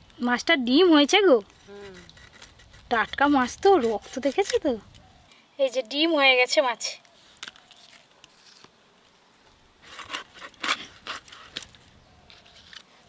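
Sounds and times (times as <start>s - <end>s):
blade scraping and crunching fish: 9.8s - 11.8s.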